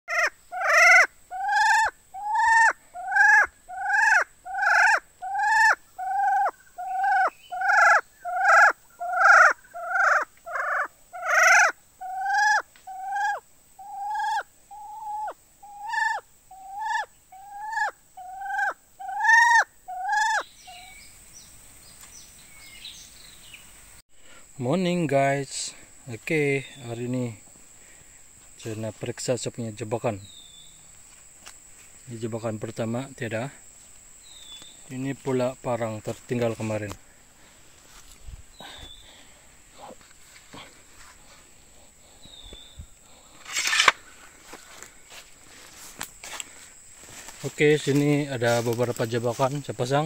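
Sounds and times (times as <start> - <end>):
partridge calling: 0.1 - 23.7.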